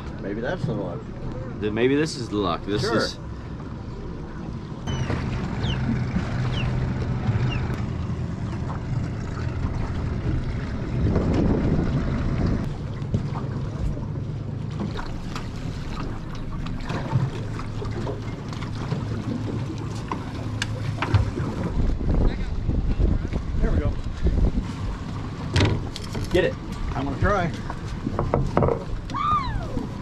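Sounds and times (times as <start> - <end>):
outboard motor humming: 0.0 - 30.0
water lapping hull: 0.0 - 30.0
wind on microphone: 9.4 - 12.7, 21.2 - 25.9.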